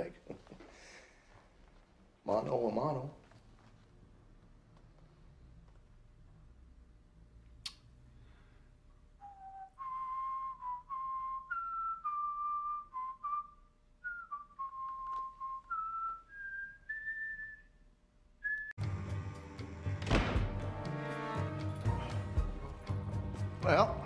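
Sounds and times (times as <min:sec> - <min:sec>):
man whistling a slow tune: 0:09.2 - 0:17.8, 0:18.4 - 0:18.8.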